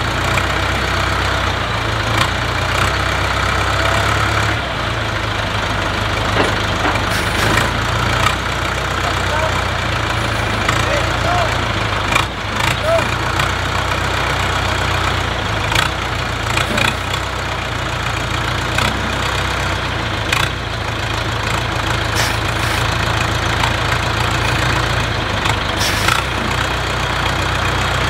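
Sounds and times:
diesel engine running at low revs: 0:00.0 - 0:28.0
metal clunks: 0:06.2 - 0:08.4.

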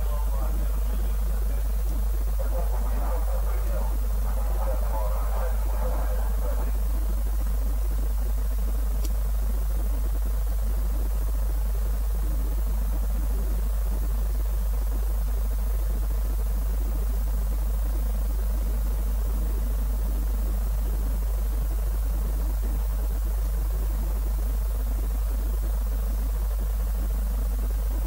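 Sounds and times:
low electrical hum: 0:00.0 - 0:28.0
brief click: 0:09.0 - 0:09.2.

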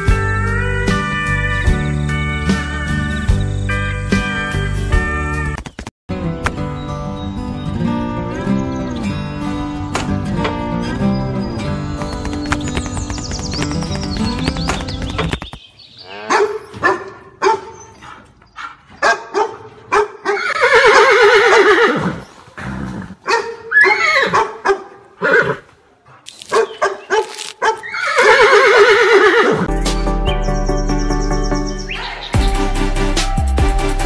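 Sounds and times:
music: 0:00.0 - 0:15.2, 0:29.7 - 0:34.0
dog barks: 0:16.2 - 0:21.1, 0:23.2 - 0:25.2, 0:26.5 - 0:27.9
horse whinnying: 0:20.3 - 0:24.4, 0:25.2 - 0:25.7, 0:27.8 - 0:29.7.

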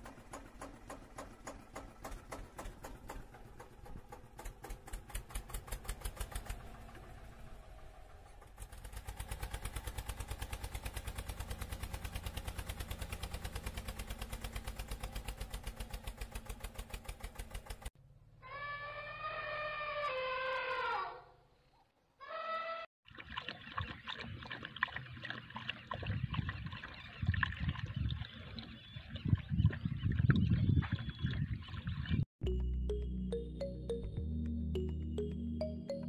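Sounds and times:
tractor engine chugging: 0:00.0 - 0:17.9.

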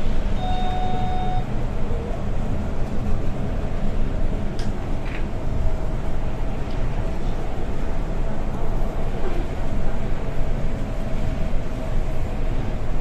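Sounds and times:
bus engine and road rumble: 0:00.0 - 0:13.0
short electronic beep: 0:00.4 - 0:01.5.

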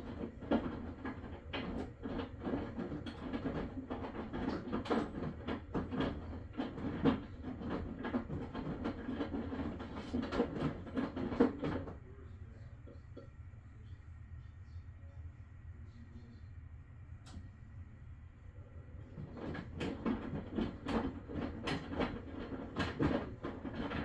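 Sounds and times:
washing machine clacking and knocking: 0:00.0 - 0:12.0, 0:19.0 - 0:24.0
washing machine hum: 0:00.0 - 0:24.0.

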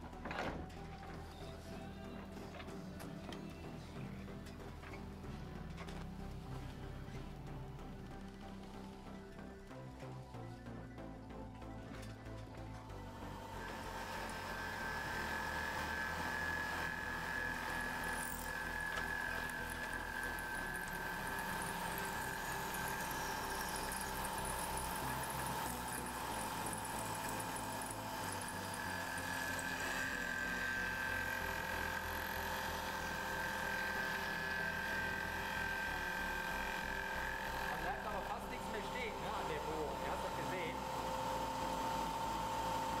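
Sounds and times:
machine tool motor whine: 0:00.0 - 0:43.0
metal cutting noise: 0:12.9 - 0:43.0.

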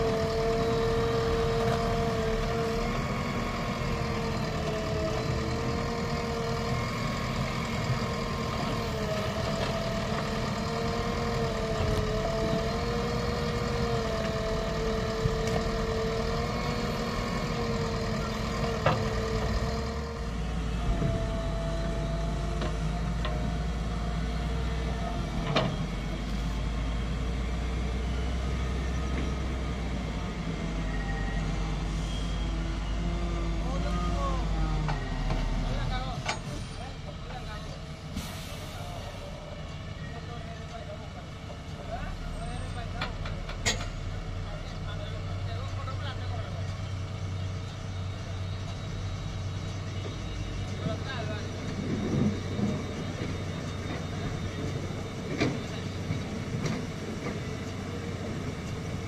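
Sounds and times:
backhoe engine and hydraulics whining: 0:00.0 - 0:59.0.

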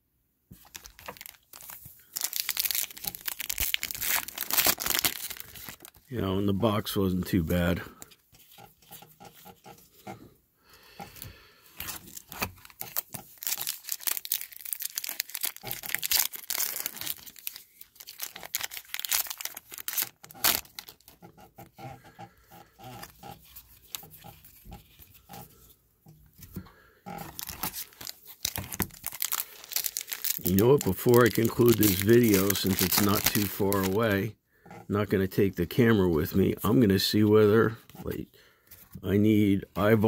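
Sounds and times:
cards being shuffled: 0:00.5 - 0:06.1, 0:11.0 - 0:21.2, 0:27.2 - 0:34.0
foil wrappers tearing and crinkling: 0:00.6 - 0:06.1, 0:11.2 - 0:21.2, 0:26.4 - 0:34.2.

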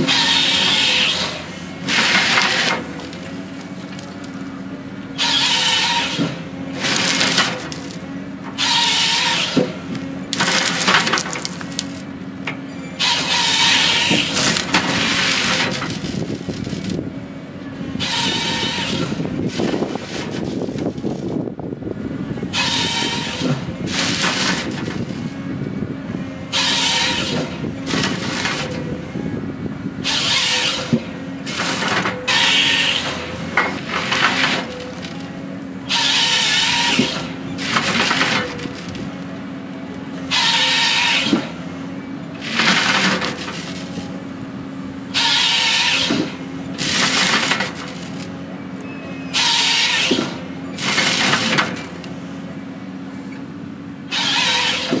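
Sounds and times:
chainsaw cutting stems: 0:00.0 - 0:03.3, 0:05.2 - 0:08.0, 0:08.6 - 0:12.1, 0:13.0 - 0:17.0, 0:22.6 - 0:25.4, 0:30.0 - 0:35.2, 0:35.9 - 0:39.1, 0:42.4 - 0:44.0, 0:45.2 - 0:48.3, 0:49.4 - 0:52.1, 0:54.1 - 0:55.0
diesel engine and hydraulics running: 0:00.0 - 0:55.0.

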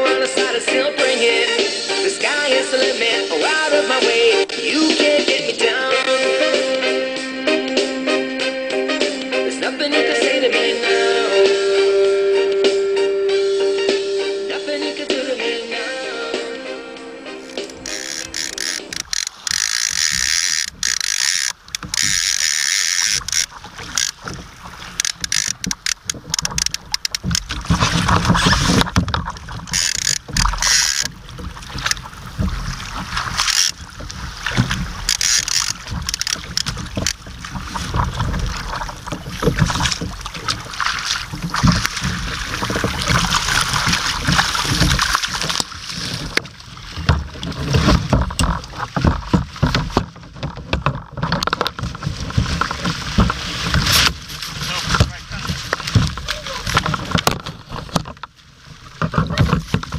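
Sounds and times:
water sloshing against kayak: 0:17.2 - 0:59.9
knocks and clatter of gear: 0:17.4 - 0:59.9.

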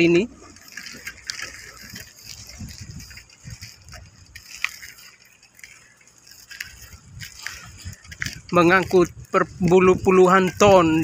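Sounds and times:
light clicks and rattles: 0:00.0 - 0:11.0
wind gusting over microphone: 0:00.0 - 0:11.0.

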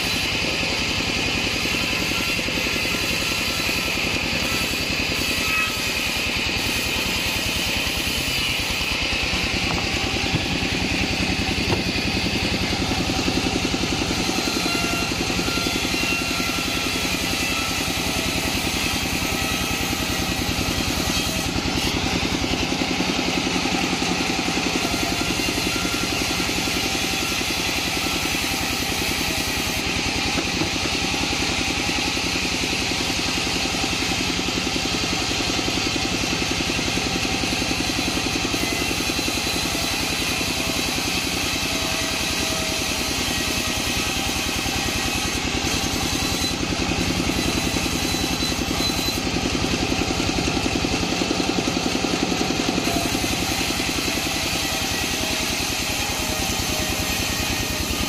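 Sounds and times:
saw blade cutting wood: 0:00.0 - 0:58.0
sawmill engine running: 0:00.0 - 0:58.0.

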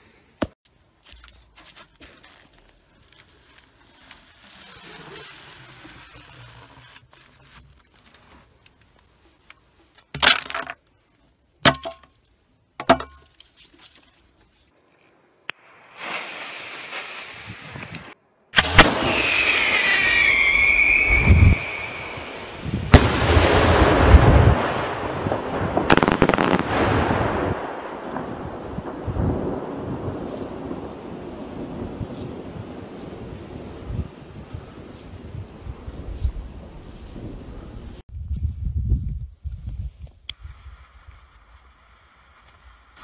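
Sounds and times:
hiss: 0:15.9 - 0:18.1
whistle rockets launching: 0:18.6 - 0:24.0.

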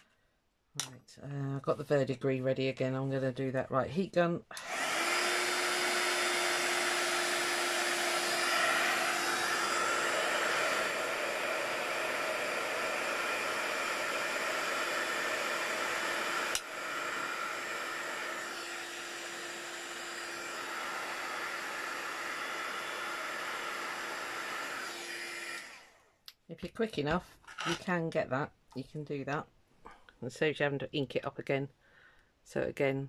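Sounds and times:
heat gun blowing air: 0:04.5 - 0:26.1.

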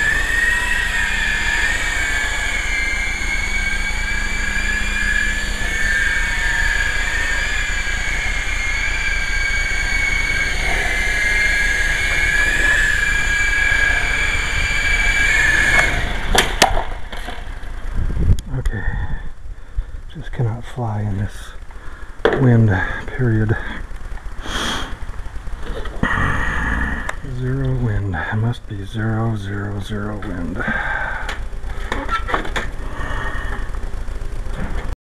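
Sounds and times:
rc helicopter motors whining: 0:00.0 - 0:20.1, 0:21.1 - 0:35.0
wind rumbling on microphone: 0:17.0 - 0:20.2.

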